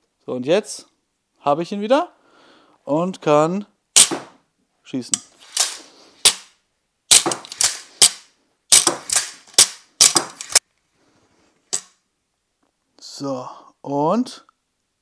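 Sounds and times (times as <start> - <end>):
bolts striking foam target: 4.0 - 4.4, 7.1 - 7.5, 8.7 - 10.4
crossbow snaps and clacks: 5.2 - 6.5, 7.1 - 10.6.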